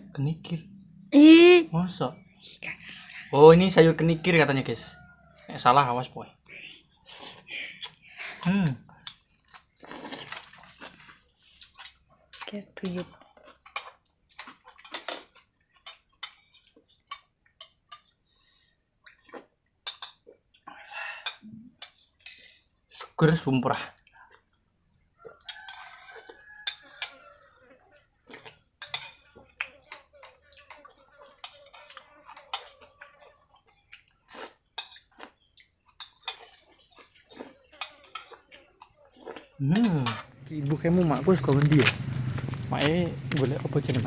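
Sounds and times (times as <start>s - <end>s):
slurping and chewing: 6.8s - 23.2s, 24.0s - 44.0s
metal spoon scraping in a bowl: 25.4s - 27.4s, 28.8s - 33.3s, 37.5s - 38.6s, 39.7s - 41.6s.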